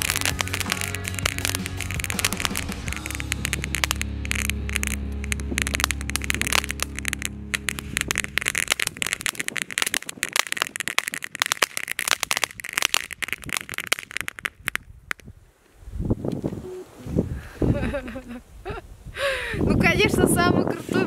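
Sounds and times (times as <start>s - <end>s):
fireworks crackling: 0.0s - 15.4s.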